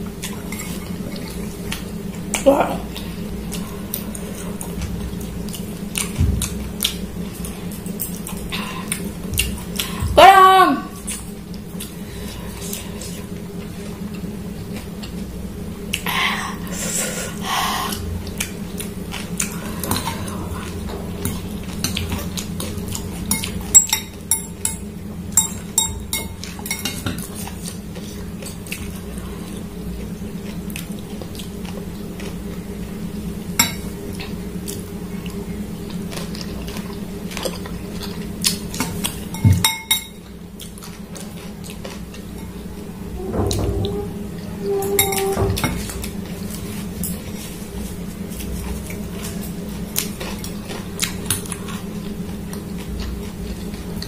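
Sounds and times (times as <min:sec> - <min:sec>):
low hum: 0:00.0 - 0:26.6, 0:42.2 - 0:49.8
cutlery clinking on glass bowl: 0:23.3 - 0:27.2, 0:39.3 - 0:40.2.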